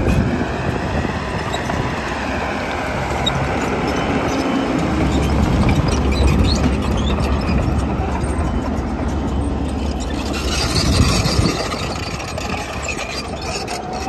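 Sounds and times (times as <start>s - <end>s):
diesel engine rumbling: 0.0s - 14.0s.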